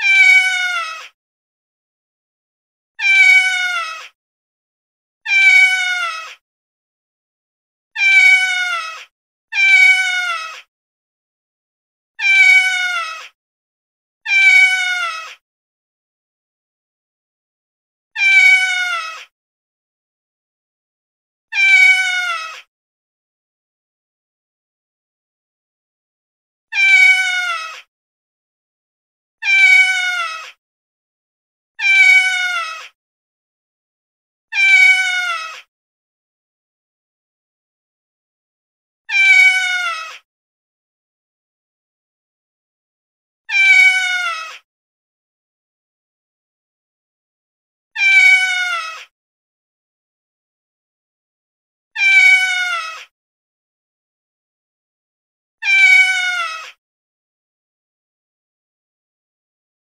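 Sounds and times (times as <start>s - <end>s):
cat meowing: 0.0s - 1.2s, 3.0s - 4.2s, 5.3s - 6.4s, 8.0s - 10.7s, 12.2s - 13.4s, 14.3s - 15.4s, 18.2s - 19.3s, 21.5s - 22.7s, 26.7s - 27.9s, 29.4s - 30.6s, 31.8s - 33.0s, 34.5s - 35.7s, 39.1s - 40.2s, 43.5s - 44.6s, 48.0s - 49.1s, 52.0s - 53.1s, 55.6s - 56.8s.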